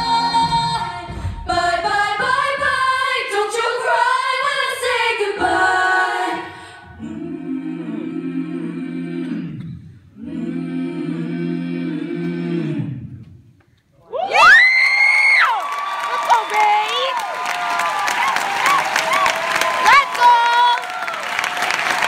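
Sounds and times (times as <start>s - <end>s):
choir singing a cappella: 0.0s - 13.5s.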